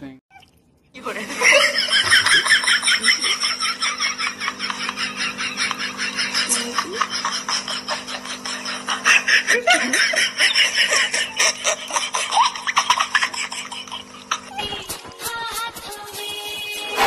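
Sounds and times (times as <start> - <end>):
otter squeaking chirps: 0.3 - 0.6.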